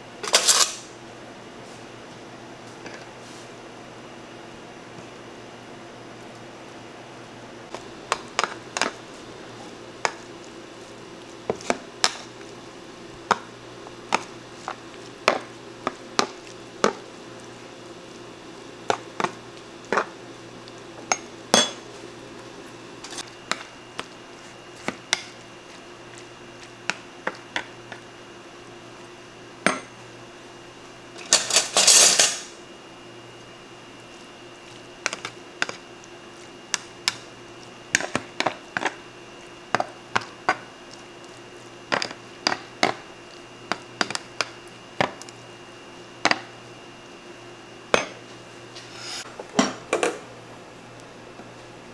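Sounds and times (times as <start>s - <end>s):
faint steady hum: 0.0s - 51.9s
dishes and utensils clinking: 31.2s - 32.5s.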